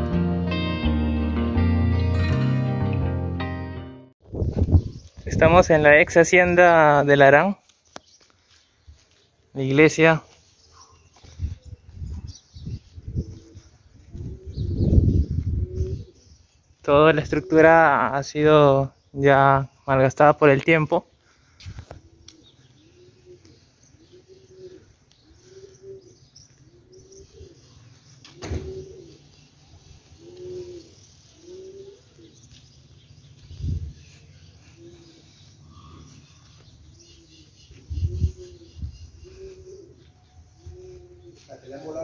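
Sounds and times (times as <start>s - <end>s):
dove cooing: 13.0s - 16.4s, 21.9s - 32.7s, 33.4s - 42.0s.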